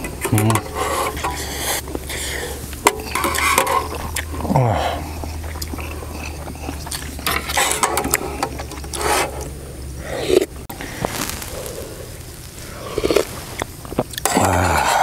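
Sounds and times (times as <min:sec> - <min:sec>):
metal tongs scraping a tin: 0:00.0 - 0:04.4, 0:05.1 - 0:09.5
steady low hum: 0:00.0 - 0:15.0.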